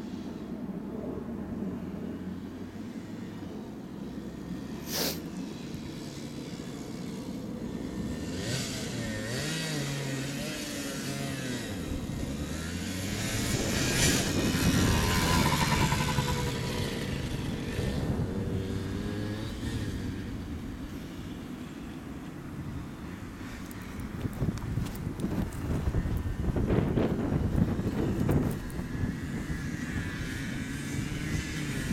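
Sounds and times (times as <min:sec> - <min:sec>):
motorcycle engine revving: 0:04.8 - 0:21.1.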